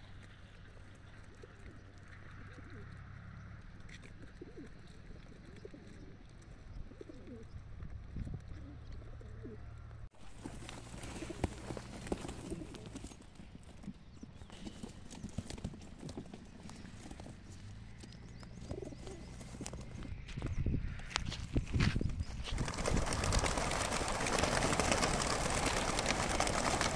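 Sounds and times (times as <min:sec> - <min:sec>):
pigeons cooing: 0:01.2 - 0:03.1, 0:04.2 - 0:06.2, 0:06.8 - 0:07.6, 0:08.4 - 0:13.2, 0:18.4 - 0:20.0, 0:22.6 - 0:26.9
pigeon feet scratching on plastic: 0:10.2 - 0:13.3.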